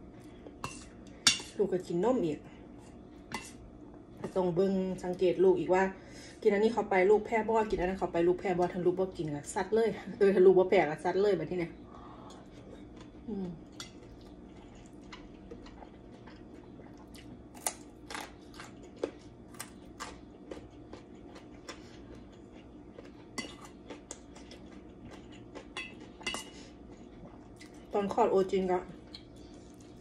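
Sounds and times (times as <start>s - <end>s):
steady low hum: 0.0s - 30.0s
chewing: 12.1s - 28.0s, 29.0s - 30.0s
cutlery clinking on metal bowls: 25.8s - 26.6s.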